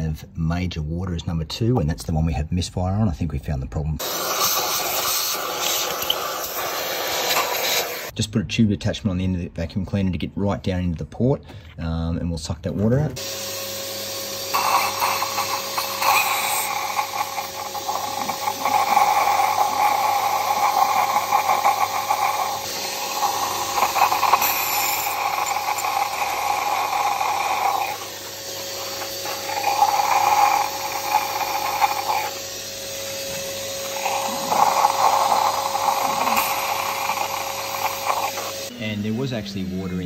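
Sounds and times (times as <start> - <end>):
vacuum cleaner motor whine: 4.0 - 8.1, 13.2 - 40.0
vacuum sucking water: 4.0 - 8.2, 13.2 - 40.0.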